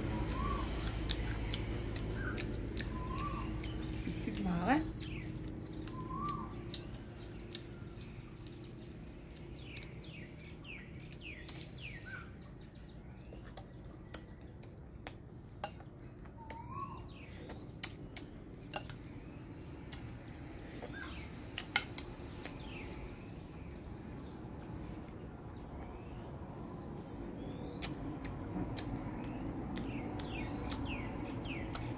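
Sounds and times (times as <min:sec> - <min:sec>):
birds chirping: 0:00.0 - 0:31.9.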